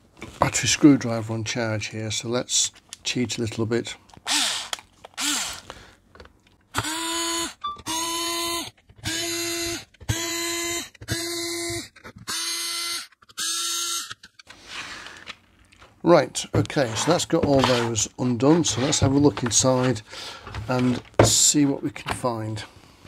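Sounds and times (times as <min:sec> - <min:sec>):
electric screwdriver motor whir: 0:04.3 - 0:05.7, 0:06.7 - 0:14.3.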